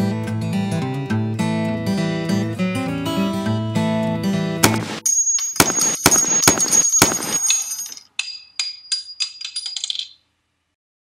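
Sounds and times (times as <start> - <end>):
gunshots with ringing tail: 5.6 - 7.6.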